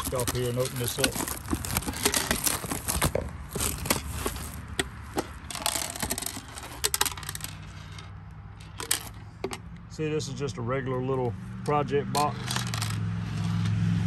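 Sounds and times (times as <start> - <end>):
plastic wrapping crackling: 0.0 - 7.6.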